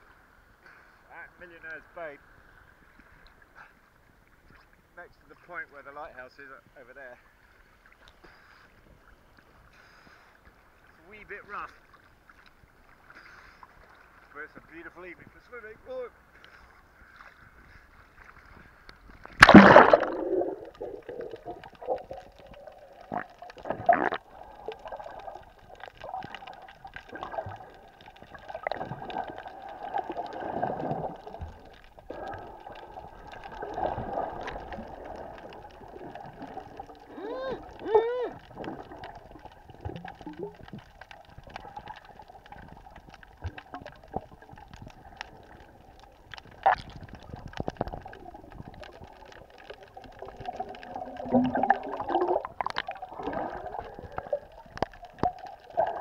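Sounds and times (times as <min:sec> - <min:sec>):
underwater sloshing and gurgling: 0:00.0 - 0:56.0
loud water splash: 0:19.4 - 0:21.0
rising bubble tones: 0:19.4 - 0:56.0.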